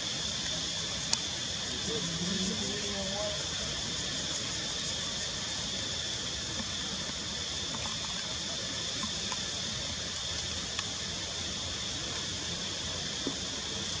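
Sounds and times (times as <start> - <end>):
steady hiss: 0.0 - 14.0
faint tick: 10.1 - 10.9.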